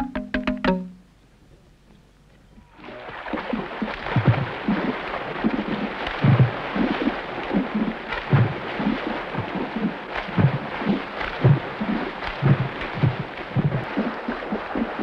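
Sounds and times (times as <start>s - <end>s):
hands striking water thumps: 0.0s - 1.0s
continuous splashing: 2.7s - 15.0s.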